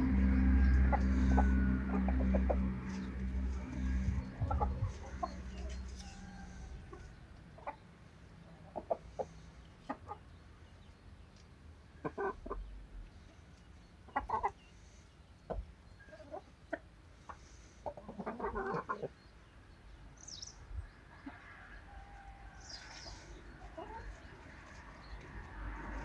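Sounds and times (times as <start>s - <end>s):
low hum: 0.0s - 7.4s
chickens clucking: 0.0s - 26.0s.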